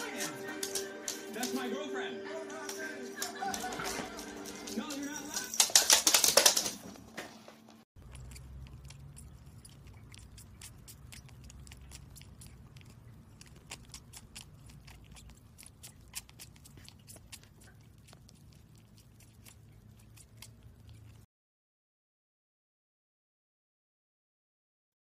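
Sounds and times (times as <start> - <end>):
cat chewing and licking: 0.0 - 1.7, 8.0 - 21.3.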